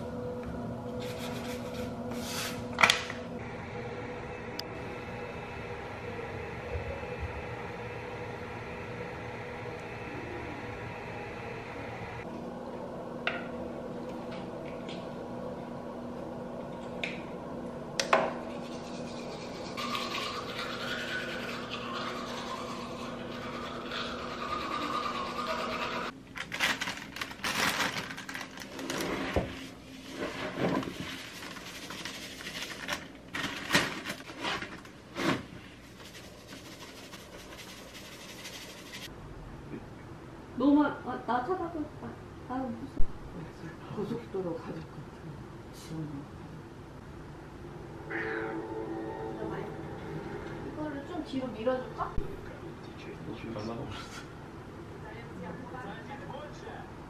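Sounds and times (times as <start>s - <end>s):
machine hum: 0.0s - 35.1s, 46.4s - 53.8s
rubbing and scraping handling noises: 1.0s - 2.7s, 23.9s - 39.1s.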